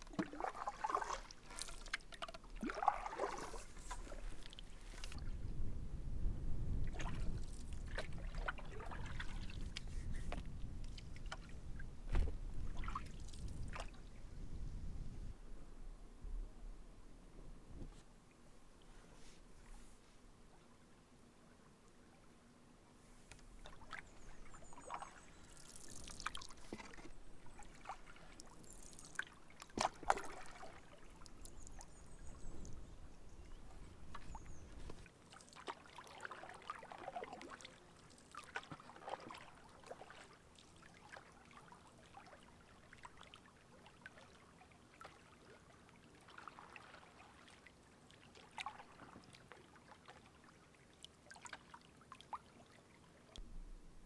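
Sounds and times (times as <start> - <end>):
paddle splashing water: 0.0 - 5.4, 6.8 - 14.2, 23.3 - 52.7
water lapping against hull: 0.0 - 15.2, 23.2 - 53.5.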